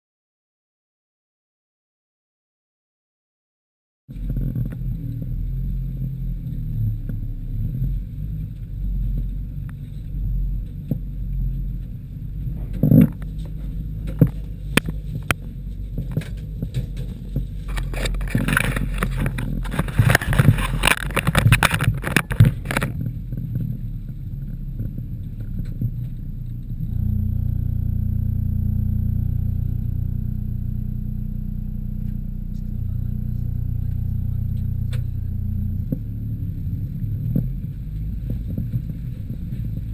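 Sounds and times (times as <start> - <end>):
vehicle body knocking and rattling: 4.1 - 26.9, 32.0 - 39.9
van engine low drone: 4.1 - 39.9.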